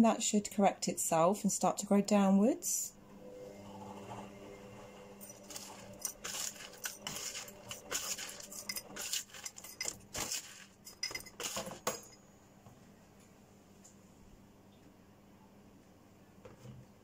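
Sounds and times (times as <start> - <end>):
small stones clinking on spoon: 5.2 - 12.2
spoon scraping gritty potting mix: 5.2 - 12.2.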